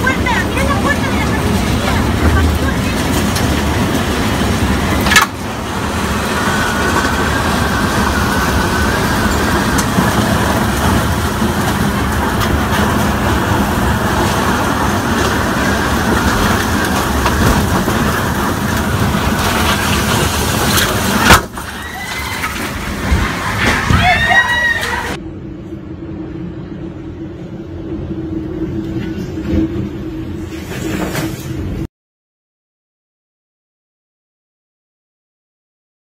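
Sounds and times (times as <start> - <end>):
storm wind blowing hard: 0.0 - 21.8
rain: 0.0 - 25.2.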